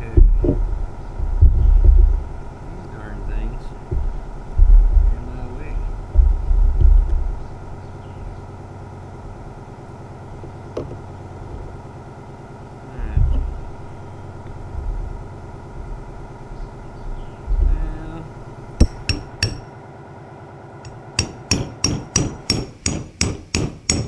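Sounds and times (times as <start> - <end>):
low thumps: 0.0 - 19.6
steady engine-like hum: 0.0 - 24.0.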